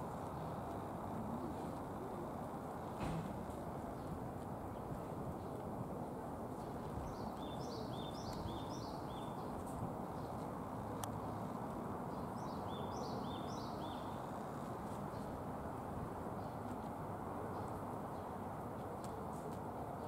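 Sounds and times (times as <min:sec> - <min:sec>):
low outdoor background hum: 0:00.0 - 0:20.0
songbird chirping: 0:06.5 - 0:11.4, 0:12.1 - 0:15.4.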